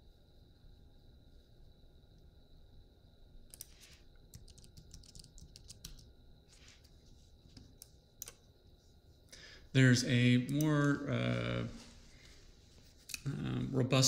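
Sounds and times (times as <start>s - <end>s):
computer keyboard keystrokes: 3.5s - 6.1s.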